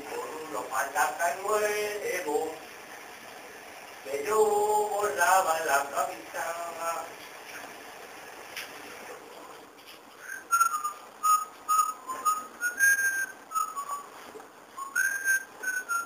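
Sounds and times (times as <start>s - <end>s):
quiet hiss: 0.0s - 16.0s
person whistling a tune: 10.2s - 14.1s, 14.8s - 16.0s.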